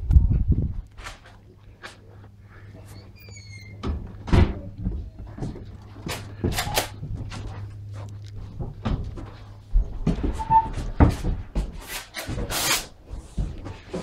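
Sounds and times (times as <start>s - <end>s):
footsteps on wooden floor: 3.8s - 14.0s.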